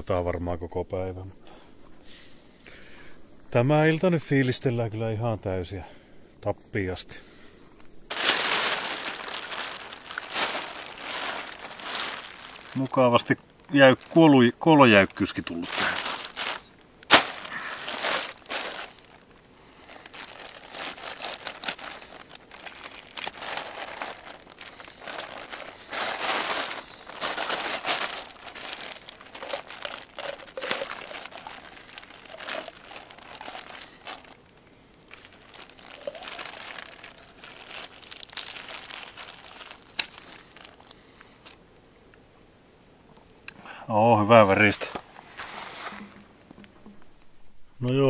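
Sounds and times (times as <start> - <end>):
crinkling and rustling handling: 7.6 - 41.6, 44.3 - 48.0.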